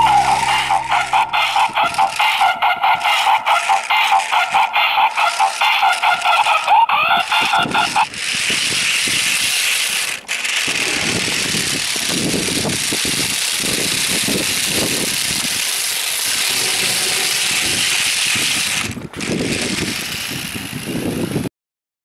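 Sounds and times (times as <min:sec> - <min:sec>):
toy car electric motors whirring: 0:00.0 - 0:21.5.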